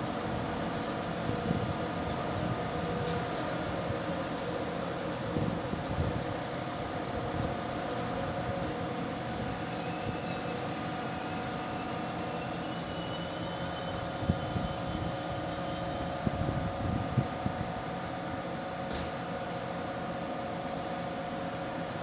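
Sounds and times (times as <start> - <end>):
locomotive hum and whine: 0.0 - 22.0.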